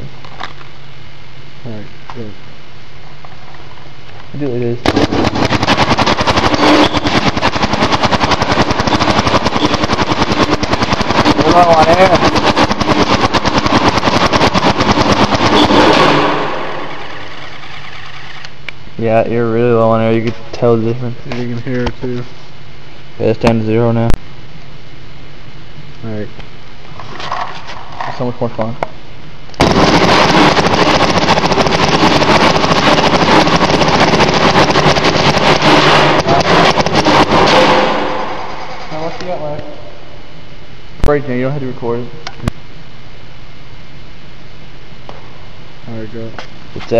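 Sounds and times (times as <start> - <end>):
steady noise: 0.0 - 46.9
paintball marker rapid firing: 4.8 - 18.6, 29.6 - 39.5.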